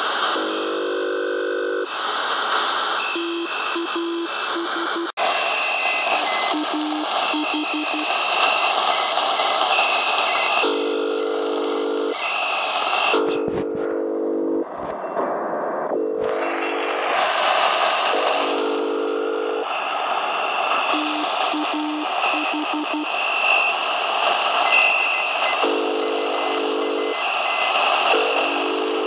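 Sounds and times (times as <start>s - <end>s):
shortwave receiver hiss: 0.0s - 29.0s
high and low beeps: 3.0s - 8.2s, 21.0s - 23.7s.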